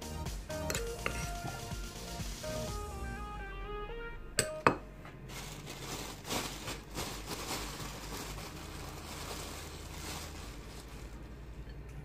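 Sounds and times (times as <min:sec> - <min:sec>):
plastic bag rustling: 0:05.2 - 0:11.6.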